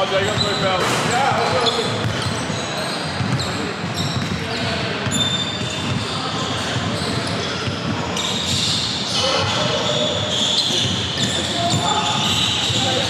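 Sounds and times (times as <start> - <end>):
players' voices: 0.0 - 13.0
sneakers squeaking on floor: 0.0 - 13.0
basketball bouncing: 3.2 - 6.1.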